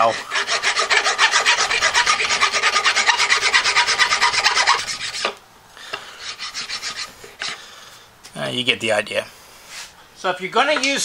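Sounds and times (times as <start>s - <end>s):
file rasping on metal: 0.0s - 5.4s, 6.2s - 7.6s.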